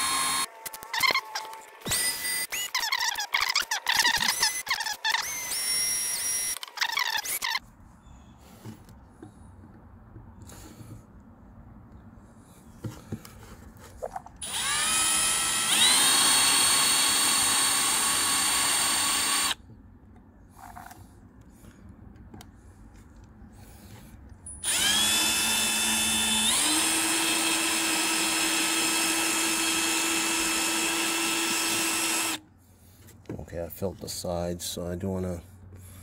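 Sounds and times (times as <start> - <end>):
power drill whining: 0.0 - 7.6, 14.4 - 19.6, 24.6 - 32.4.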